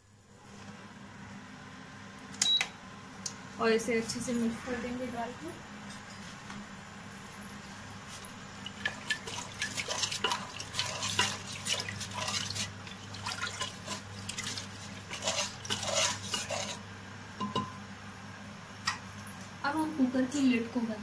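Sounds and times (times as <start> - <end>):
sloshing stirring in a pot: 8.0 - 16.9.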